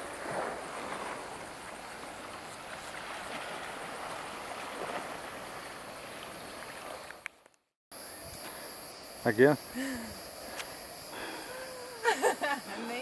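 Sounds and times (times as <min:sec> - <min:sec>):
high insect drone: 0:00.0 - 0:07.2, 0:07.9 - 0:13.0
small waves lapping: 0:00.0 - 0:07.5.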